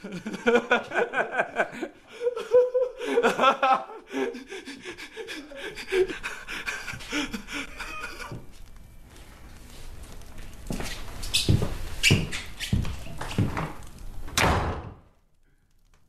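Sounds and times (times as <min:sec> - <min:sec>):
man laughing: 0:00.0 - 0:08.5.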